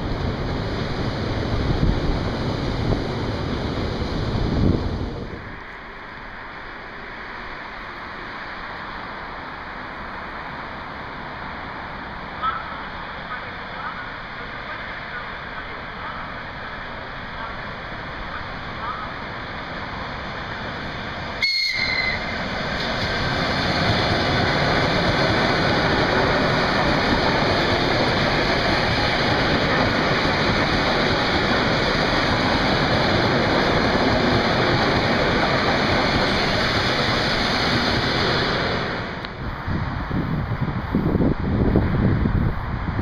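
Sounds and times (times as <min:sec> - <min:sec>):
train wheels passing: 0:00.0 - 0:43.0
train whistle: 0:21.4 - 0:22.4.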